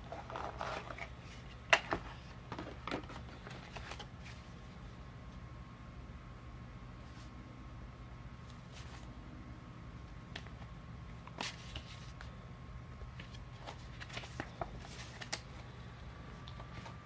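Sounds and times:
steady low hum: 0.0 - 17.0
paper cards rustling and snapping: 10.3 - 12.3, 13.0 - 15.7.

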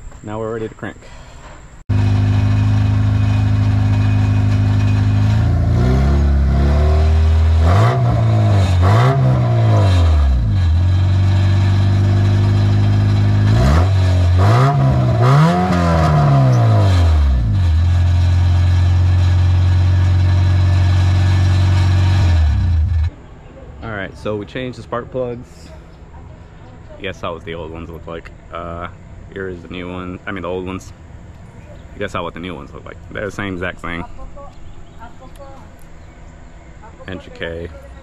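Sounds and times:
car engine idling and revving: 1.9 - 23.2.

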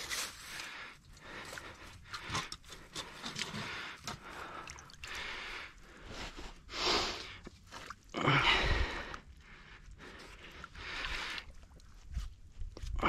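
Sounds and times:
rustling through dry reeds: 0.0 - 0.8.

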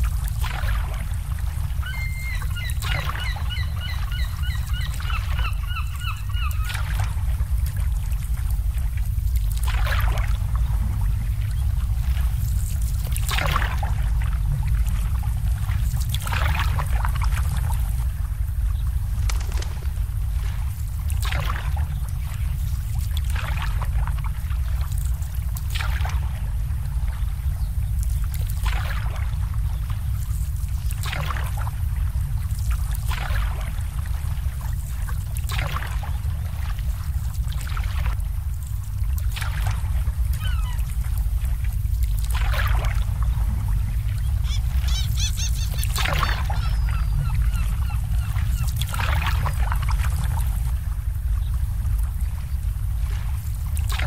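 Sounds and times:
low rumble: 0.0 - 54.0
waves slapping boat hulls: 0.0 - 54.0
bird chirping: 1.8 - 6.7, 44.4 - 48.0.

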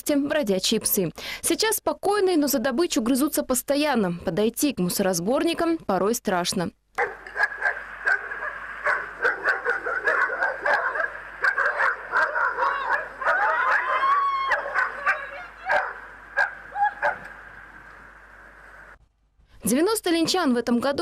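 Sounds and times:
dogs barking: 7.0 - 17.4
dog long rising cry: 7.5 - 17.2.

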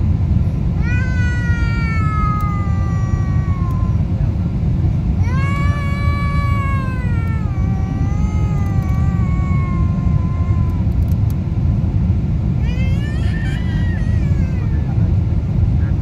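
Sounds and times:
airliner cabin rumble: 0.0 - 16.0
baby crying: 0.8 - 4.0, 5.2 - 10.9, 12.6 - 15.0.

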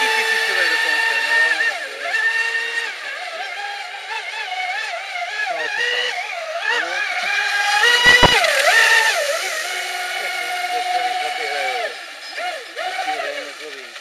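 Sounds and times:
low thump: 8.1 - 8.4.

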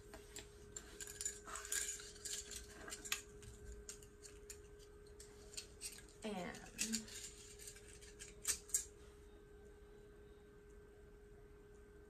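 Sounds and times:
metal binder rings clinking: 0.7 - 8.9.

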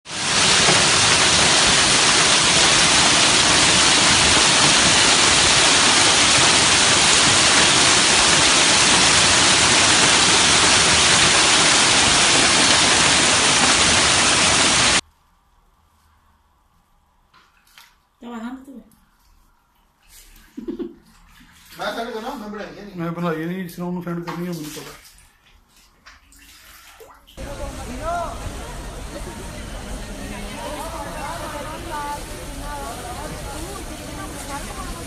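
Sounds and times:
hail and rain on cars: 0.0 - 15.0, 27.4 - 35.0.

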